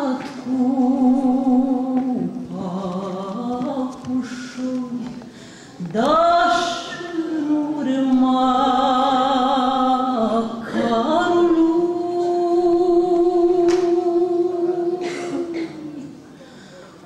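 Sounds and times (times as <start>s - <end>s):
woman singing folk song: 0.0s - 16.1s
singer breathing: 5.2s - 5.9s, 16.3s - 17.0s.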